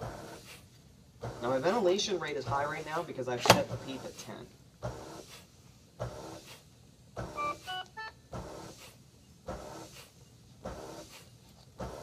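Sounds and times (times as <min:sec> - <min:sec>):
ventilator mechanical breaths: 0:00.0 - 0:12.0
electronic beeps: 0:07.4 - 0:08.2.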